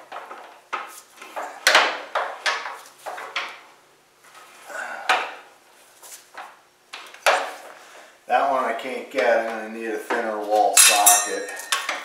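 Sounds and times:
sharp metal clanks and knocks: 0:10.8 - 0:12.0.

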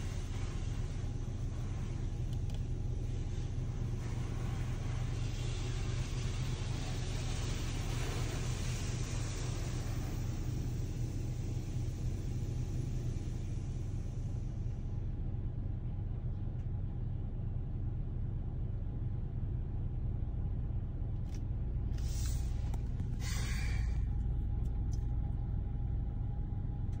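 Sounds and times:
car wash machinery rumble: 0:00.0 - 0:27.0
high hiss: 0:22.0 - 0:24.1.

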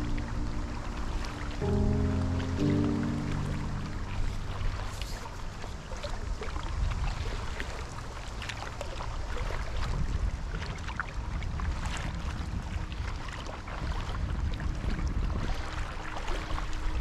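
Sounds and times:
paddle splashes and drips: 0:00.0 - 0:17.0
wind rumble on microphone: 0:00.0 - 0:17.0.

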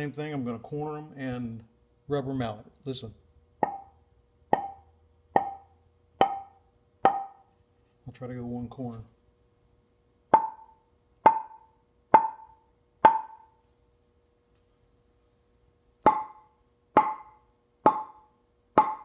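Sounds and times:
rubber mallet tapping wood: 0:03.6 - 0:07.5, 0:10.3 - 0:13.5, 0:16.0 - 0:19.0.

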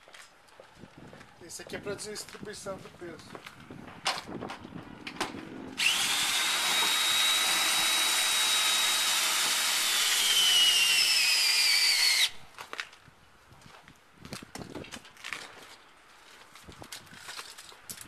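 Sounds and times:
cordless drill whining: 0:05.8 - 0:12.4.

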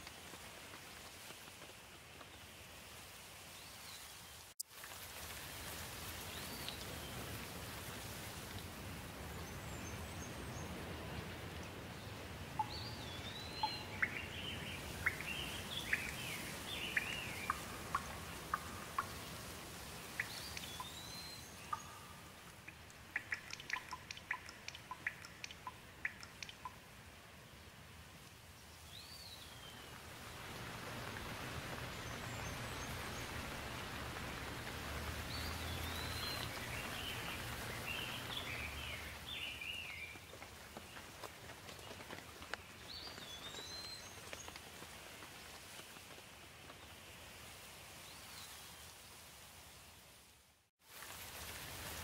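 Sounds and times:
steady rain falling: 0:00.0 - 0:52.0
water drips: 0:04.6 - 0:10.6, 0:12.4 - 0:27.2, 0:28.2 - 0:44.9
bird chirping: 0:12.6 - 0:19.4, 0:20.1 - 0:26.8, 0:31.7 - 0:40.2.

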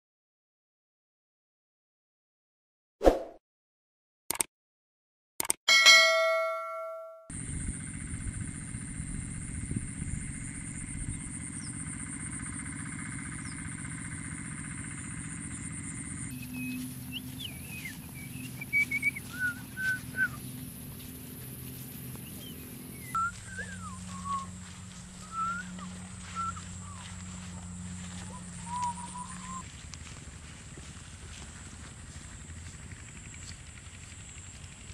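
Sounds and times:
high even whine: 0:05.9 - 0:30.6
outdoor background noise: 0:07.3 - 0:34.9
man whistling a tune: 0:18.7 - 0:20.4, 0:23.2 - 0:24.6, 0:25.2 - 0:27.0.

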